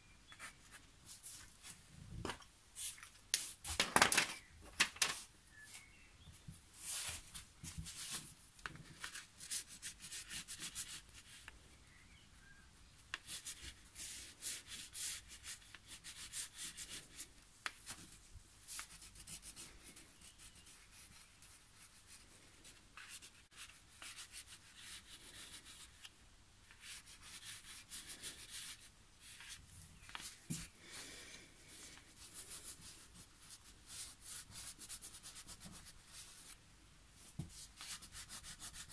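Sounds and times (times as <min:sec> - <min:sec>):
crayon scratching on paper: 0:18.7 - 0:22.2, 0:37.4 - 0:38.9.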